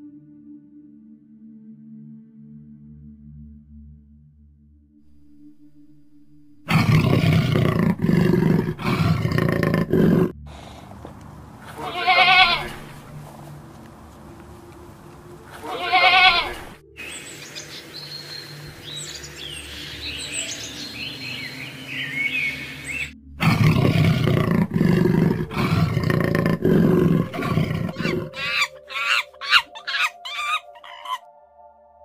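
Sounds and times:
loud low rough sound: 0:05.0 - 0:11.8, 0:22.6 - 0:28.2
goat bleating: 0:11.6 - 0:13.4, 0:15.5 - 0:16.8
bird chirping and whistling: 0:17.0 - 0:23.1, 0:27.9 - 0:31.2.

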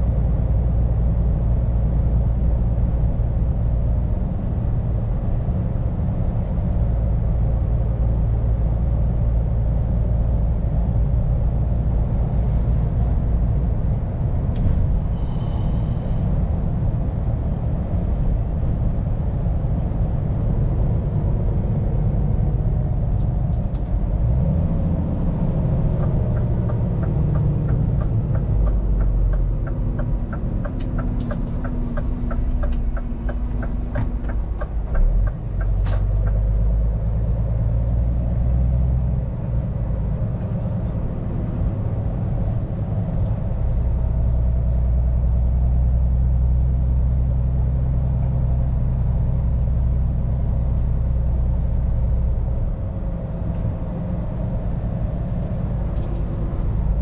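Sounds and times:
truck diesel engine running: 0:00.0 - 0:57.0
turn indicator ticking: 0:25.7 - 0:37.0.

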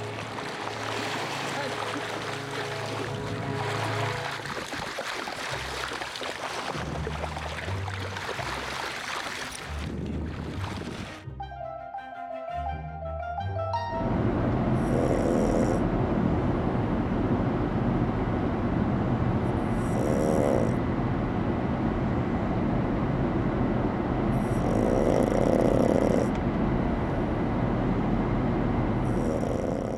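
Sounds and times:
car road noise drone: 0:00.0 - 0:04.5, 0:14.0 - 0:29.9
dog snoring: 0:14.8 - 0:15.9, 0:19.6 - 0:20.8, 0:24.4 - 0:26.4, 0:29.0 - 0:29.9.

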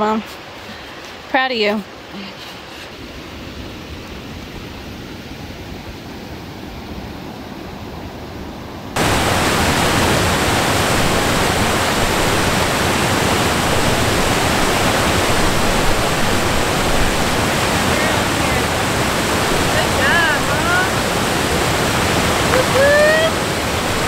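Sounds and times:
creek flowing over rocks: 0:09.0 - 0:24.0
water rushing through log jam: 0:09.0 - 0:24.0.

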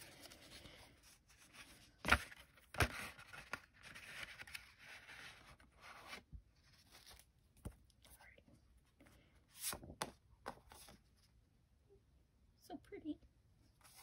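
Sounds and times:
paper rustling: 0:00.0 - 0:07.9.

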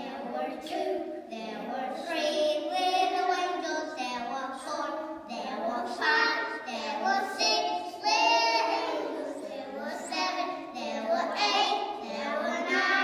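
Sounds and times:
children singing: 0:00.0 - 0:13.0.

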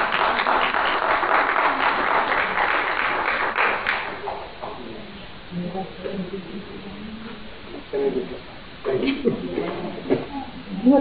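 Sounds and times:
audience applauding: 0:00.0 - 0:04.4.

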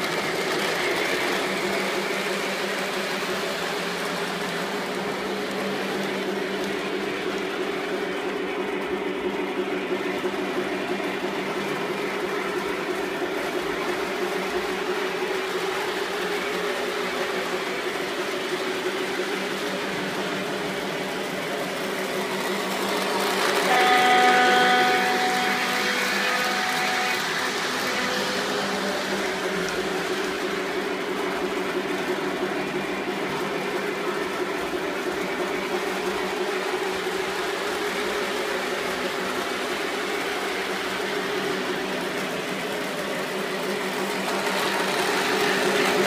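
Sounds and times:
model train motor whirring: 0:13.9 - 0:46.0
higher steady tones: 0:21.9 - 0:31.2.

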